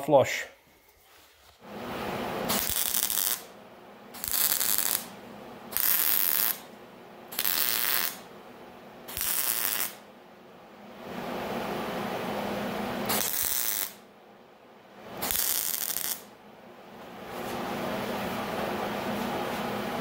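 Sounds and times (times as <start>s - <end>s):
welding arc bursts: 2.4s - 3.5s, 4.2s - 5.1s, 5.7s - 6.6s, 7.3s - 8.2s, 9.1s - 10.0s, 13.1s - 14.0s, 15.2s - 16.3s.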